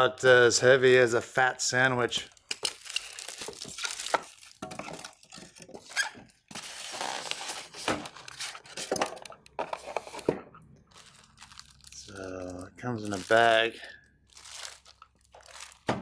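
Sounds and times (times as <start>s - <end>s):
plastic bag crinkling: 2.3s - 8.9s, 10.9s - 16.0s.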